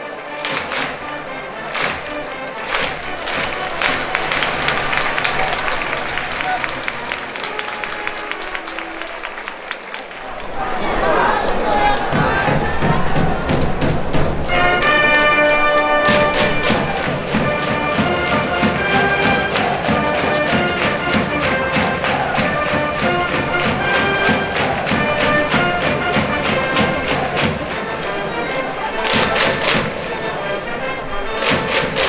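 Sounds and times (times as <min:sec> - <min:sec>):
brass playing a melody: 0:14.5 - 0:32.0.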